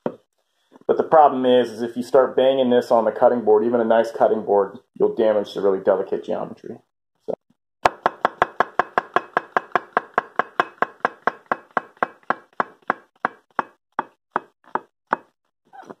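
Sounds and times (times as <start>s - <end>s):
knife chopping on wooden board: 7.9s - 15.4s.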